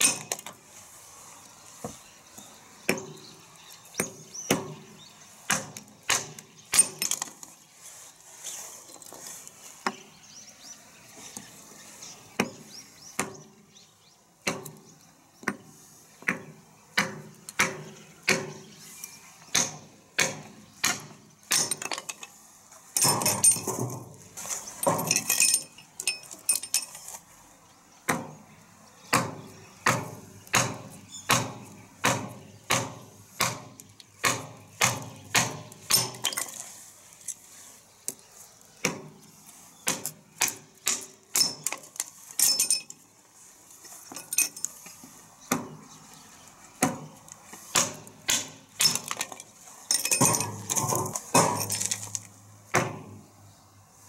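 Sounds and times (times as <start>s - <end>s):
hatchet chopping wood: 2.9s - 3.3s, 4.0s - 7.2s, 13.2s - 13.5s, 14.4s - 15.6s, 16.2s - 18.7s, 19.5s - 21.9s, 28.1s - 28.4s, 29.1s - 36.4s, 38.8s - 39.2s, 39.8s - 41.9s, 45.5s - 45.8s, 46.8s - 49.3s, 50.2s - 52.0s, 52.7s - 53.2s.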